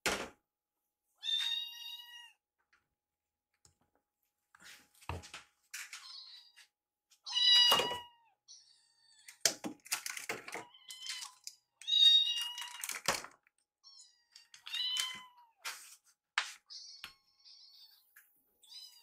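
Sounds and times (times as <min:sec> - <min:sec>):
kittens meowing: 0:01.2 - 0:02.4, 0:10.6 - 0:13.0, 0:13.8 - 0:15.6, 0:16.7 - 0:19.0.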